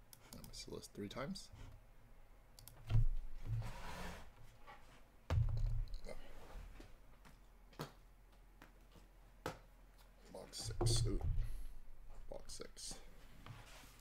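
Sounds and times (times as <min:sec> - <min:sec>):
dull thump: 0:10.6 - 0:11.7.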